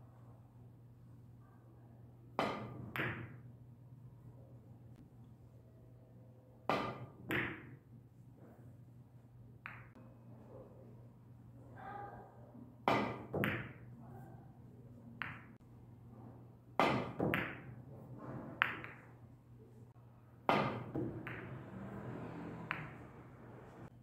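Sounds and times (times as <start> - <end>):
billiard balls clicking: 9.6 - 10.0, 18.6 - 19.2, 20.5 - 21.6, 22.6 - 23.0
balls hitting cushions: 16.8 - 17.7, 20.5 - 21.6
cue striking ball: 18.6 - 19.0, 20.5 - 23.1.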